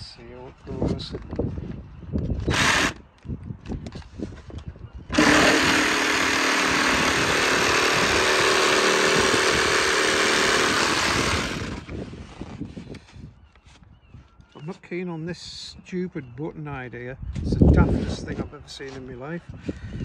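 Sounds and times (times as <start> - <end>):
jigsaw cutting insulation board: 2.5 - 3.0, 5.1 - 12.2.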